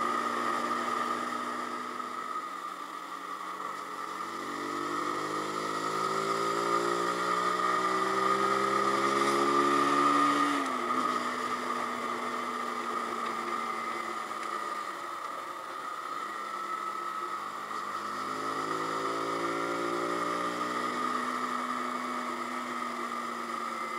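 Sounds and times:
oncoming motorcycle passing: 0:04.2 - 0:12.7.

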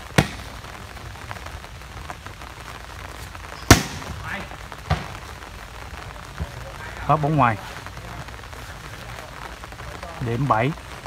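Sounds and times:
volleyball hand slaps: 0:03.7 - 0:04.1.

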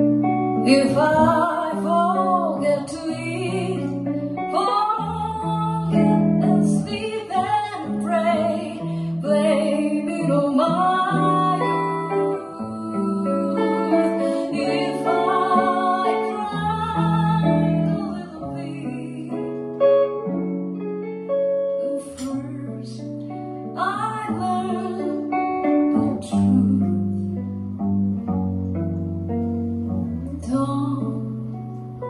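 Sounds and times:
jazz ballad on piano and guitar: 0:00.0 - 0:32.0
woman singing: 0:00.6 - 0:19.8, 0:21.7 - 0:27.4, 0:30.2 - 0:31.7.

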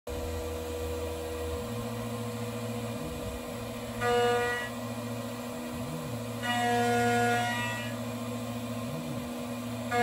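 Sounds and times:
milling spindle whine: 0:00.1 - 0:10.0
end mill cutting metal ringing: 0:03.4 - 0:05.5
axis motors sweeping in pitch: 0:05.7 - 0:08.1.

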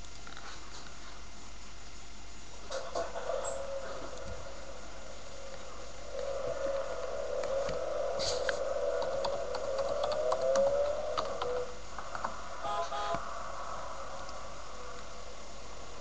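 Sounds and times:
steady wavering hum: 0:00.0 - 0:16.0
computer keyboard and mouse clicks: 0:08.5 - 0:12.3.

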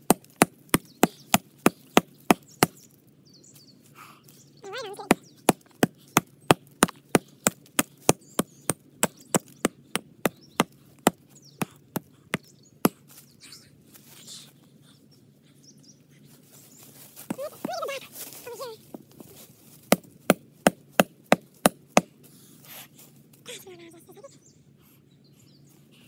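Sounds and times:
hatchet chopping tree trunk: 0:00.0 - 0:02.9, 0:04.9 - 0:13.1, 0:19.9 - 0:22.2.

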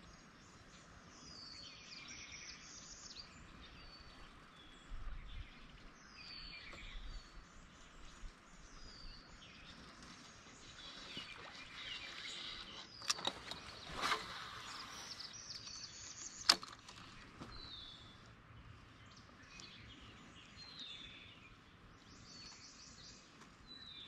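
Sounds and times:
birds chirping: 0:00.0 - 0:24.0
sharp clicks: 0:12.2 - 0:14.3, 0:15.5 - 0:17.3.

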